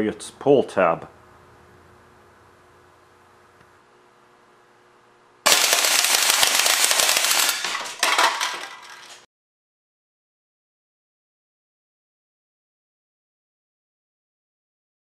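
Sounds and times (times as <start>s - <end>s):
air cannon rapid firing: 5.5s - 7.6s.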